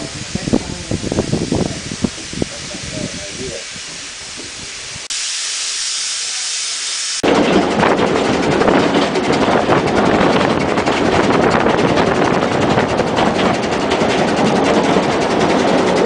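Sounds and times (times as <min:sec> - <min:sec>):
steam locomotive hissing: 0:00.0 - 0:16.0
fast rattle: 0:07.2 - 0:16.0.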